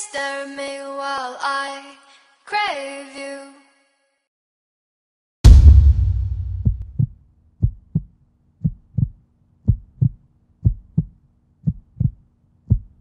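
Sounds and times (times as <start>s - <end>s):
deep boom: 5.4s - 7.1s
heartbeat thumps: 5.5s - 13.0s.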